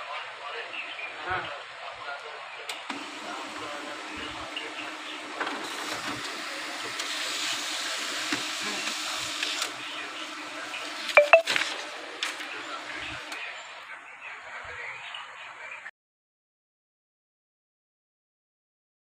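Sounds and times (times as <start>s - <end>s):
paper feed rushing: 2.9s - 13.4s
printer motor hum: 2.9s - 13.4s.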